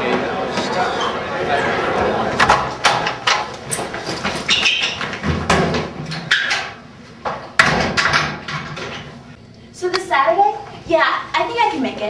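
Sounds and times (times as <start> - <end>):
handling noise: 2.3 - 9.2
footsteps and knocks: 2.4 - 9.2.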